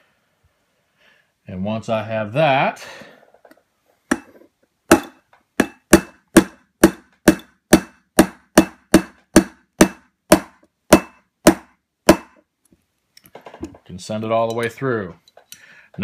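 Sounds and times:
hammer tapping metal pin: 4.1 - 12.4.

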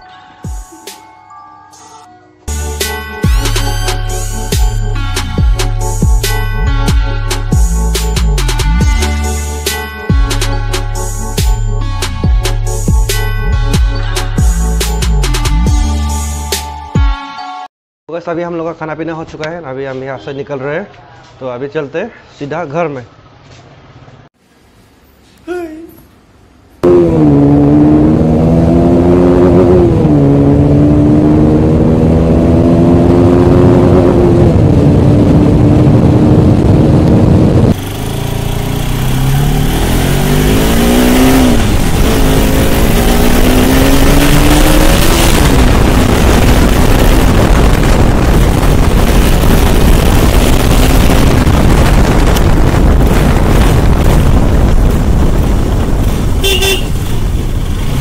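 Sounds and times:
motorcycle engine accelerating: 26.8 - 58.0
wind and road noise: 26.8 - 58.0.

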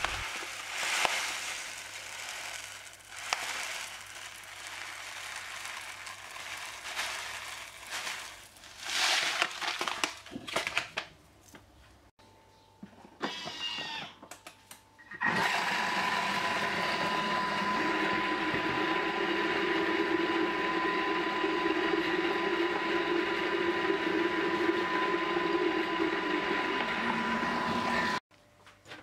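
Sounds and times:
food mixer motor drone: 0.0 - 8.3, 15.2 - 28.2.

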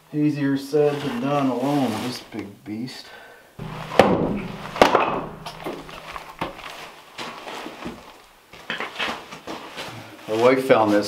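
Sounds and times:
wood knocking on stone floor: 3.6 - 6.6.

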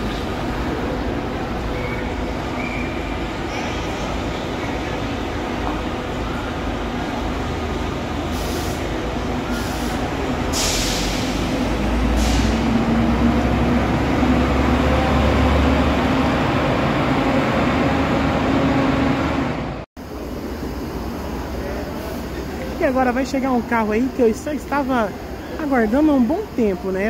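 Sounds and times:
diesel engine rumbling: 0.0 - 27.0
air brake hisses: 8.3 - 8.9, 9.5 - 11.5, 12.1 - 12.8.

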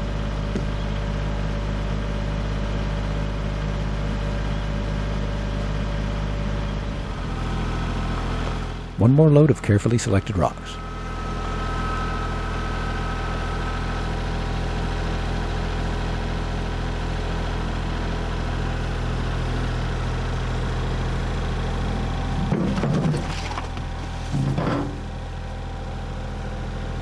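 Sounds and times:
tractor diesel engine running: 0.0 - 27.0
thin whine: 9.8 - 14.0
loader bucket clattering on rocks: 22.3 - 25.1.

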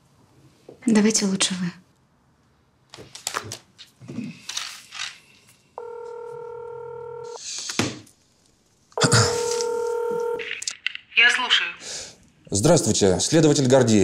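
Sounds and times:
telephone ringback beep: 5.8 - 7.4, 9.0 - 10.5.

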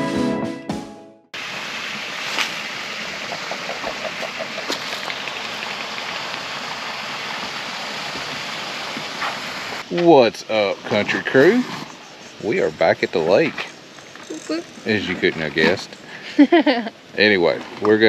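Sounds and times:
rushing hiss of outdoor ambience: 1.4 - 18.0.

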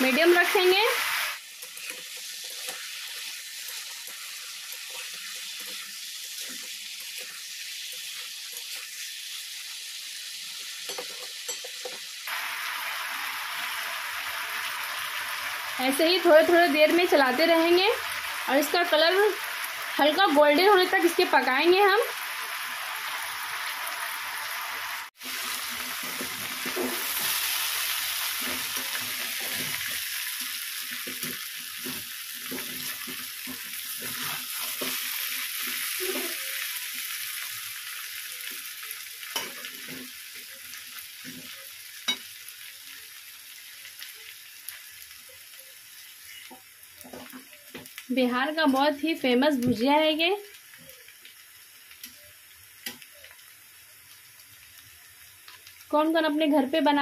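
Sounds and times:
potatoes sizzling in oil: 0.0 - 57.0
metal spatula scraping a pan: 1.6 - 4.2, 25.4 - 27.4, 28.3 - 36.6.

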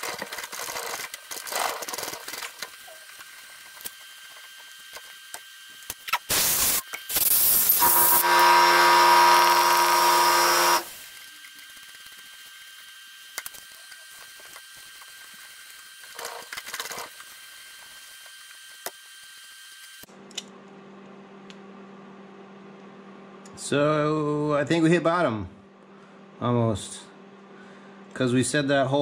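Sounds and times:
loud whirring hiss: 6.1 - 11.2.

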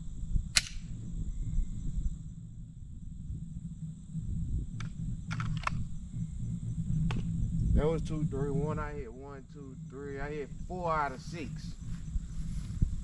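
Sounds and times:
insects chirring: 0.0 - 13.0
low rumble: 0.0 - 13.0
sharp clicks: 0.5 - 0.9, 4.8 - 5.9.

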